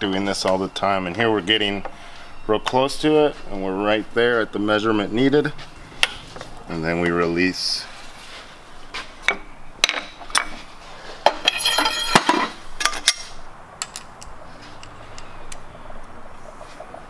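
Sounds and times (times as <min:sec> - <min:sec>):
metal tube bender clinks: 0:11.4 - 0:12.5.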